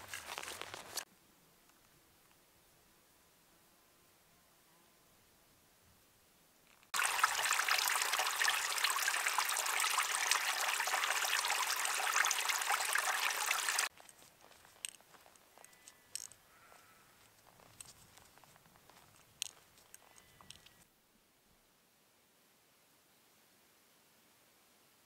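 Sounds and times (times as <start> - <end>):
running water: 6.9 - 13.9.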